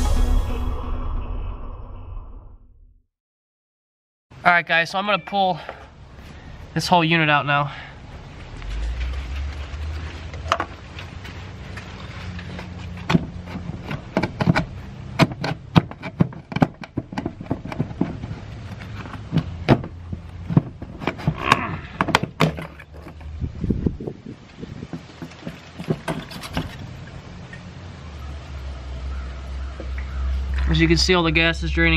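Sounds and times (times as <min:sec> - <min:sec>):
clicks knocks and scrapes of metal part: 0:11.7 - 0:23.4, 0:24.9 - 0:26.9.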